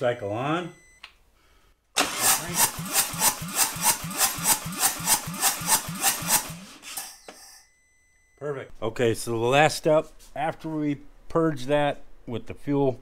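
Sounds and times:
motorcycle engine cranking on starter: 2.0 - 7.2.

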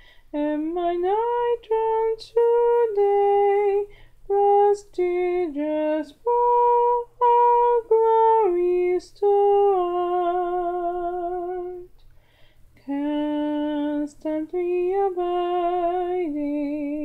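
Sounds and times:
quick breath: 0.0 - 0.3, 3.9 - 4.2, 12.0 - 12.8
woman singing a hymn: 0.3 - 11.9, 12.8 - 17.0.

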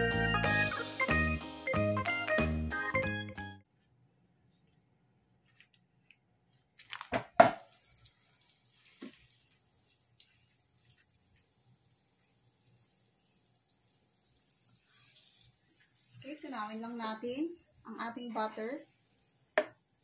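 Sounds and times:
butter sizzling: 6.8 - 20.0
butter knocking on frying pan: 19.6 - 19.8.

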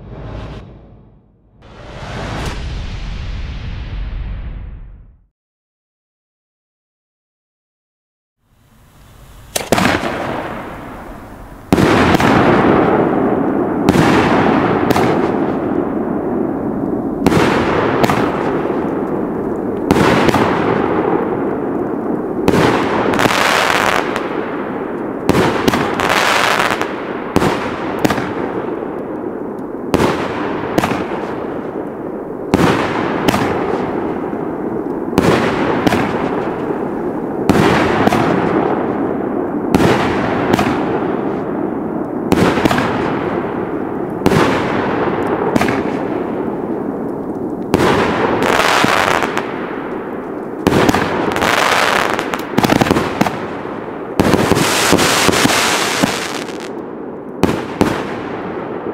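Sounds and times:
firework cake firing shots: 9.5 - 11.0, 17.2 - 18.8, 32.6 - 34.0, 35.2 - 36.6, 37.5 - 38.8, 39.7 - 41.3, 42.3 - 43.2, 44.2 - 46.2.

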